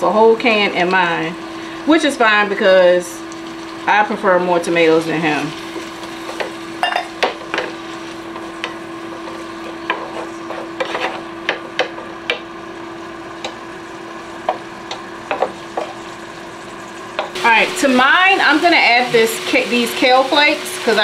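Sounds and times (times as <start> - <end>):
steady hum: 0.0 - 21.0
vegetables sizzling in skillet: 0.0 - 21.0
wooden spoon scraping pan: 7.5 - 11.3
spoon knocking against pan: 14.4 - 15.9.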